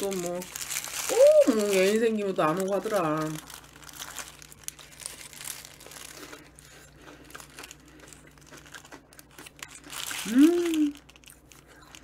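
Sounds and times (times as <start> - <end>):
paper wrapping crinkling: 0.0 - 12.0
biting and chewing: 3.4 - 12.0.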